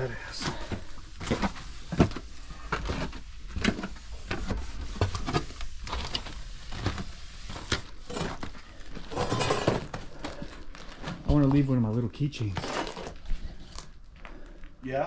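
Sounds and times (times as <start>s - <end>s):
footsteps crunching over debris: 4.8s - 14.9s.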